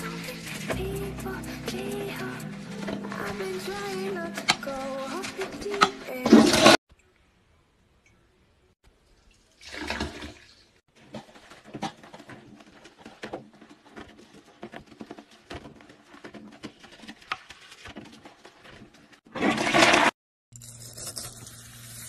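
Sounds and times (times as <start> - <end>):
toilet brush scrubbing: 0.0 - 6.8, 9.6 - 20.2
water splashing in toilet bowl: 9.0 - 22.0.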